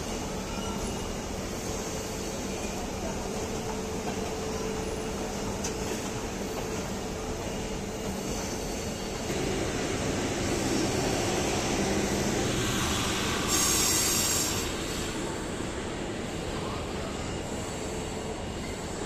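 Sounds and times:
train wheels on rails: 0:00.0 - 0:19.0
generator high whir: 0:09.2 - 0:14.9.

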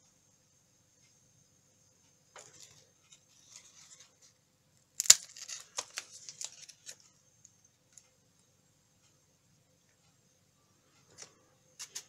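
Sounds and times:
rice cake crackling and snapping: 0:04.9 - 0:07.1.

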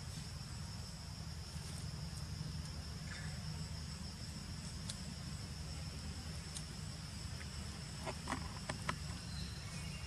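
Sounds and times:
insect chorus buzzing: 0:00.0 - 0:10.0.

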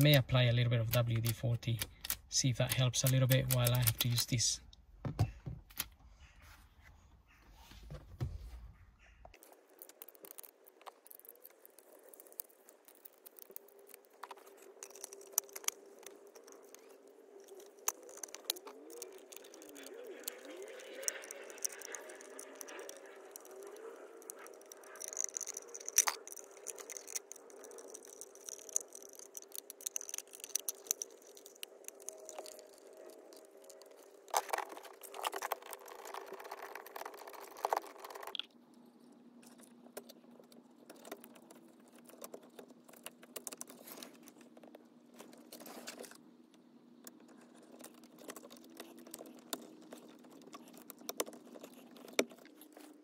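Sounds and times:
plastic part clicks and rattles: 0:00.8 - 0:04.4
faint steady hum: 0:06.8 - 0:53.0.

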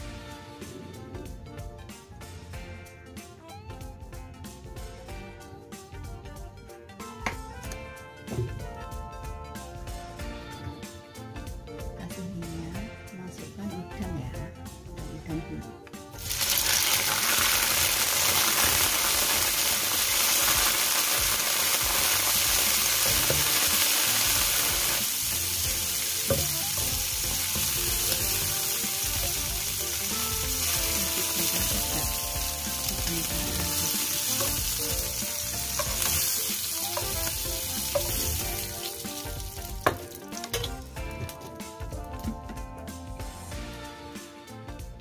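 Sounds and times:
shrimp sizzling in hot oil: 0:16.2 - 0:41.0.

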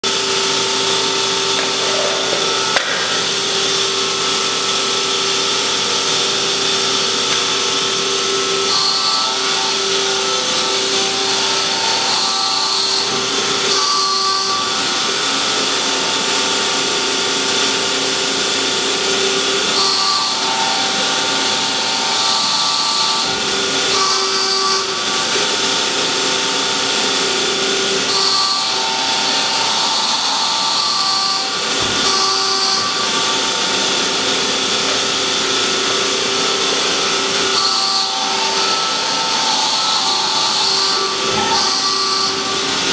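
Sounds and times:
hydraulic power unit whine: 0:00.0 - 0:42.9.

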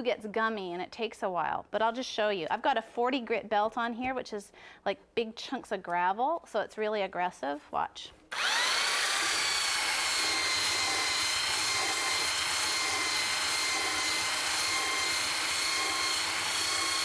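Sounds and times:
belt sander grinding wood: 0:08.3 - 0:17.0.

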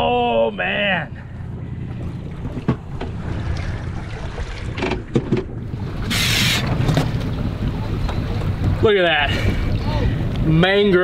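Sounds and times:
low rumble: 0:00.0 - 0:10.6
water washing against boat hull: 0:01.9 - 0:11.0
fish splashing: 0:02.0 - 0:05.1
wind on microphone: 0:05.6 - 0:11.0.

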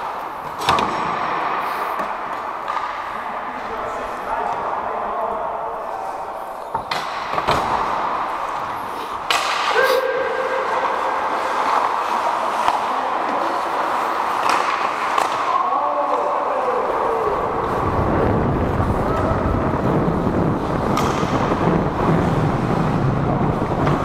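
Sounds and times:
skates scraping ice: 0:00.0 - 0:24.0
stick and puck knocks: 0:00.4 - 0:01.4, 0:06.7 - 0:08.1, 0:09.2 - 0:09.8, 0:14.4 - 0:15.5
faint shouts: 0:09.7 - 0:11.2, 0:15.4 - 0:17.6.

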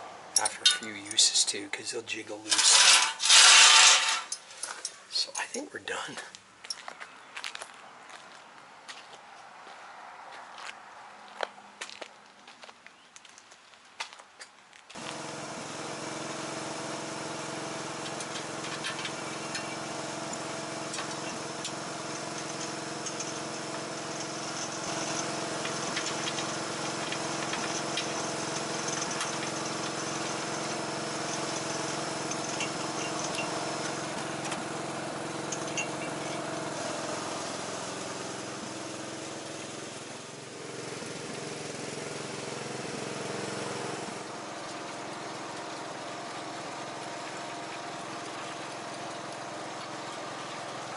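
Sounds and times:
riding mower engine running: 0:02.3 - 0:04.8, 0:14.9 - 0:50.9.

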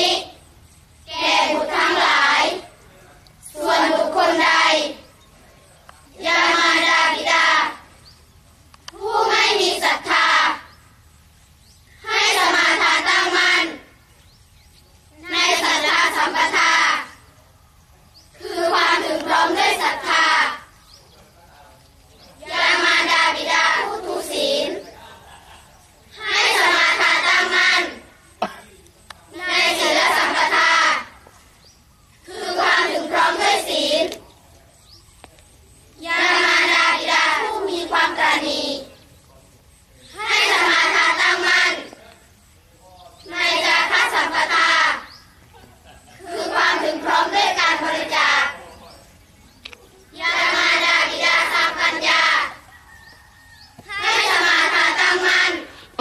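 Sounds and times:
children chanting in unison: 0:00.0 - 0:02.8, 0:03.4 - 0:05.1, 0:06.1 - 0:08.0, 0:08.9 - 0:10.8, 0:11.9 - 0:14.0, 0:15.2 - 0:17.4, 0:18.3 - 0:20.8, 0:22.4 - 0:25.0, 0:26.1 - 0:28.6, 0:29.3 - 0:31.3, 0:32.2 - 0:34.2, 0:36.0 - 0:39.1, 0:40.1 - 0:42.1, 0:43.2 - 0:45.2, 0:46.2 - 0:48.9, 0:50.1 - 0:52.8, 0:53.8 - 0:56.0.

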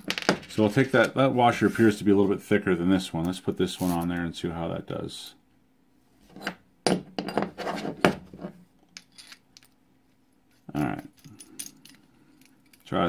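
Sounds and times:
small metal parts clinking: 0:08.9 - 0:09.8, 0:10.5 - 0:13.0.

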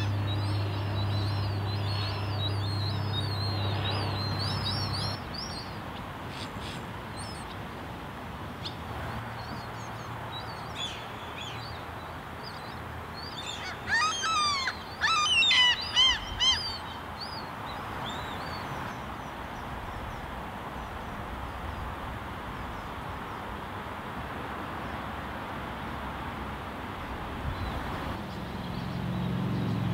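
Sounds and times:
gulls calling: 0:00.0 - 0:07.5, 0:10.4 - 0:18.7.

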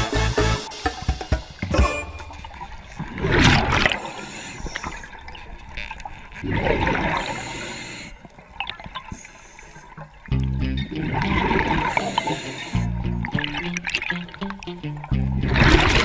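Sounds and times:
underwater rushing bubbling: 0:02.4 - 0:05.4, 0:06.4 - 0:07.4, 0:11.0 - 0:16.0.

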